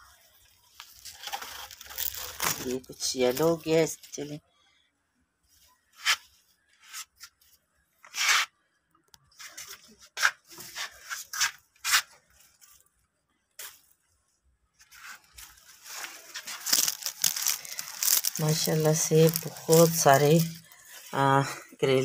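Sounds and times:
leaves and vines rustling: 0:00.0 - 0:04.2, 0:14.8 - 0:21.3.

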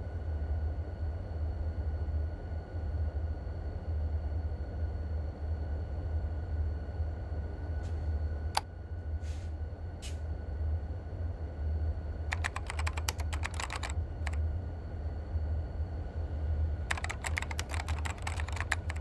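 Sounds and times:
steady low hum: 0:00.0 - 0:19.0
keyboard typing: 0:12.3 - 0:14.4, 0:16.9 - 0:19.0.

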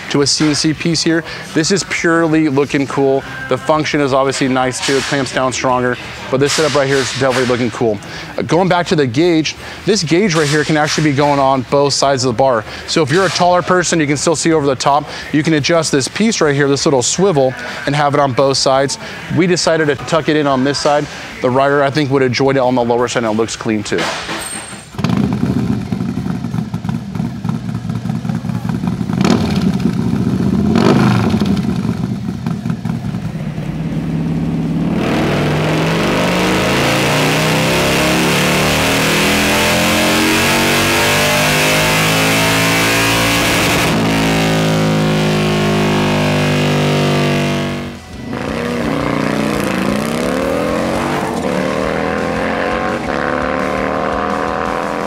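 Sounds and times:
motorcycle engine revving: 0:25.0 - 0:55.0.

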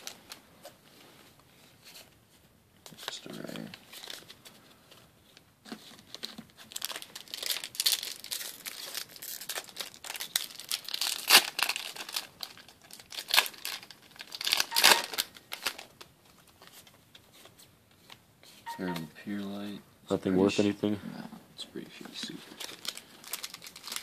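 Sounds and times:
foil wrapper crinkling and tearing: 0:05.9 - 0:16.1, 0:22.5 - 0:24.0.

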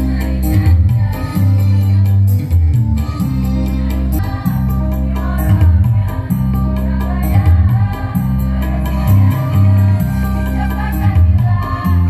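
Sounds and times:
heavy bass accompaniment: 0:00.0 - 0:12.0
steady percussive beat: 0:00.5 - 0:12.0
choir singing: 0:03.2 - 0:12.0.

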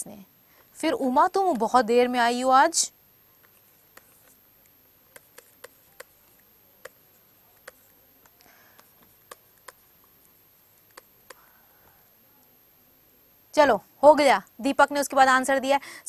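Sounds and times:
soft scratch of pen strokes: 0:03.4 - 0:11.6
stylus ticking on pen tablet: 0:03.4 - 0:11.6.

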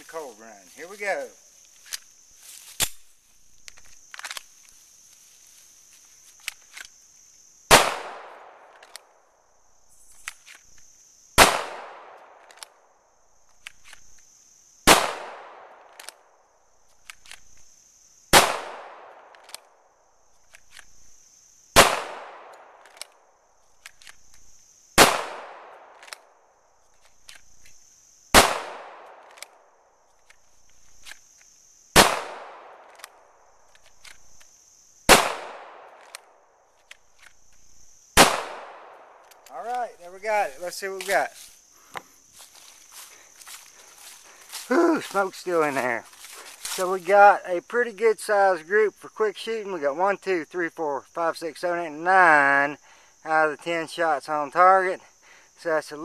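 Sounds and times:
insects droning: 0:00.0 - 0:56.0
pistol gunshots with echo: 0:11.4 - 0:12.2, 0:18.4 - 0:19.3, 0:21.8 - 0:22.5, 0:25.0 - 0:25.9, 0:28.4 - 0:29.2, 0:32.0 - 0:32.8, 0:35.1 - 0:36.0, 0:38.2 - 0:39.0
small clicks: 0:22.5 - 0:23.2, 0:23.8 - 0:24.4, 0:29.2 - 0:29.6, 0:35.9 - 0:37.6.

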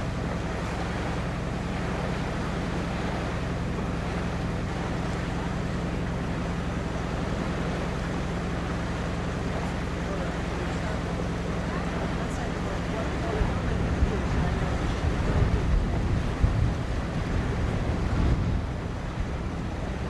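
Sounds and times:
boat engine humming: 0:00.0 - 0:20.0
water rushing past hull: 0:00.0 - 0:20.0
wind on microphone: 0:12.8 - 0:20.0.

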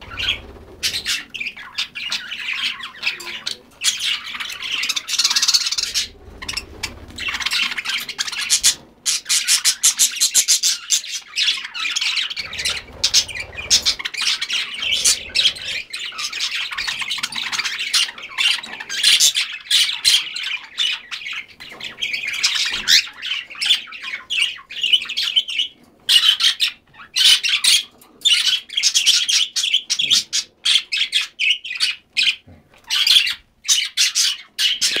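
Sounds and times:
birds chattering and squawking: 0:00.0 - 0:35.0.

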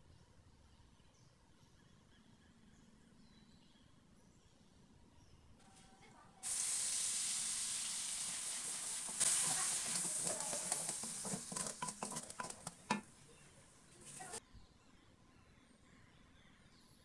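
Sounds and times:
paste sizzling in hot oil: 0:06.4 - 0:13.2
wooden spatula scraping pan: 0:09.0 - 0:13.1.

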